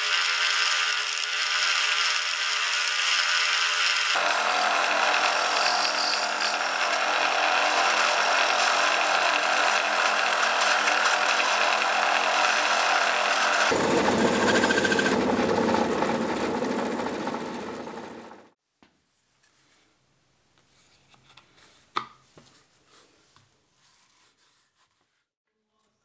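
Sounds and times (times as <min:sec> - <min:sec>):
bandsaw cutting: 0:00.0 - 0:18.2.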